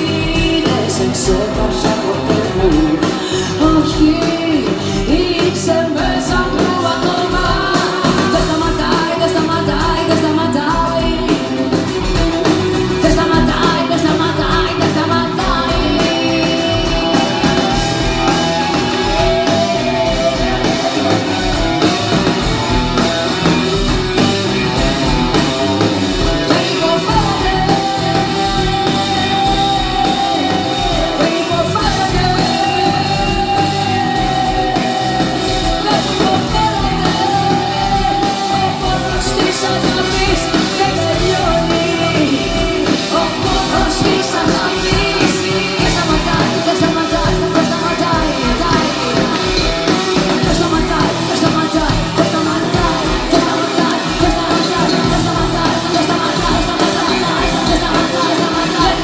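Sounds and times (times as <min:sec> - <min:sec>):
live rock band playing: 0:00.0 - 0:59.0
woman singing long held notes: 0:13.0 - 0:23.9, 0:24.8 - 0:59.0.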